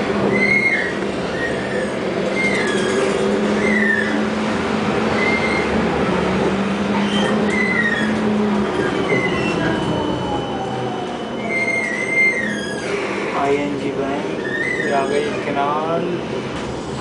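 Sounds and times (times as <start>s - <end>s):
tram motor hum: 0.0s - 17.0s
tram wheels squealing: 0.0s - 17.0s
tram whine falling in pitch: 6.9s - 13.6s.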